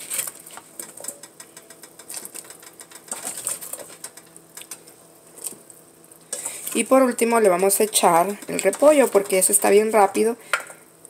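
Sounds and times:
faint steady hum: 0:00.0 - 0:11.0
soup bubbles popping: 0:00.2 - 0:09.9.

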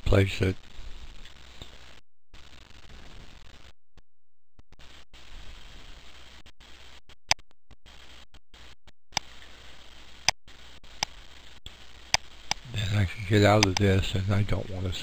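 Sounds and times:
steady hiss: 0:04.8 - 0:07.1, 0:07.8 - 0:15.0.

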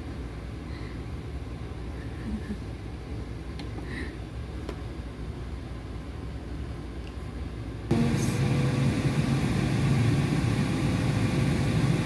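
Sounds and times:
air fryer fan whirring: 0:07.4 - 0:12.0.

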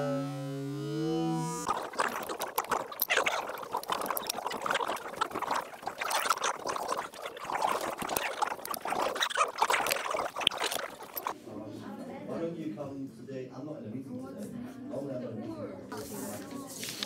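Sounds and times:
liquid pouring into glass flask: 0:01.7 - 0:11.4.

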